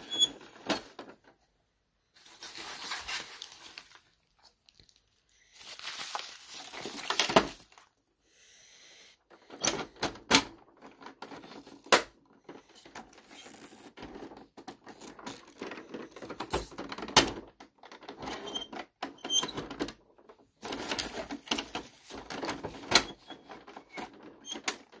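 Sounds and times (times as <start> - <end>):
trash rustling: 5.6 - 7.8.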